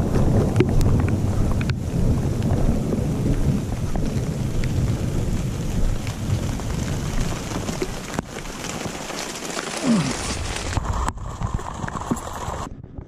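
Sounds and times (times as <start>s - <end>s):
low rumble: 0.0s - 8.6s
steady rain falling: 0.0s - 12.7s.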